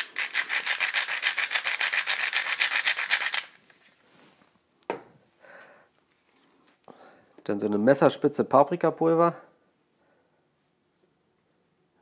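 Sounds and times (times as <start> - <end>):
salt grinder grating: 0.0 - 3.6.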